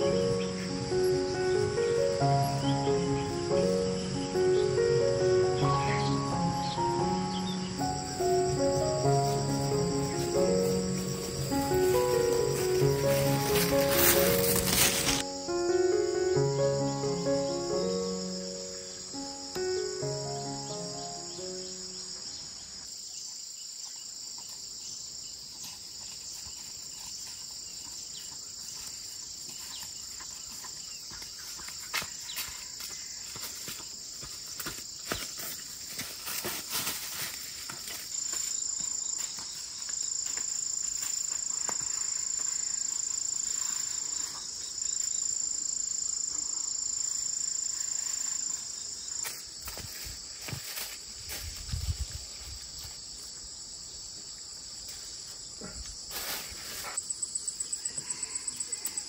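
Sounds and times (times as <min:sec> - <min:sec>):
insects chirring: 0:00.0 - 0:59.0.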